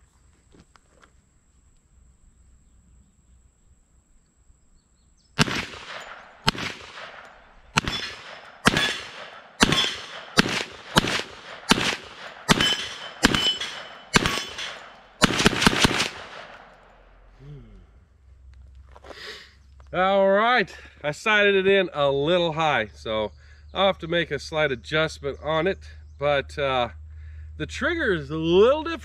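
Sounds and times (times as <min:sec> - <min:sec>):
rifle gunshots with echo: 0:05.4 - 0:17.2.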